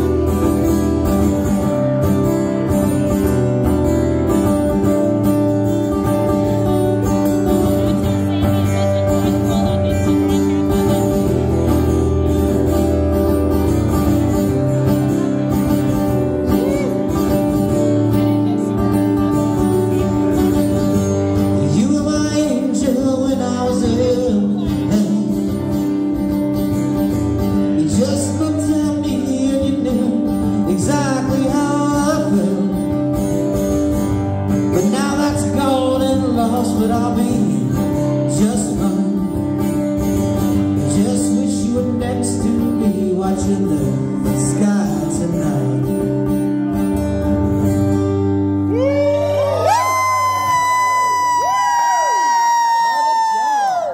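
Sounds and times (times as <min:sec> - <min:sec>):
acoustic guitars strumming: 0:00.0 - 0:52.4
man singing: 0:14.1 - 0:26.2, 0:27.6 - 0:33.6, 0:34.6 - 0:46.4.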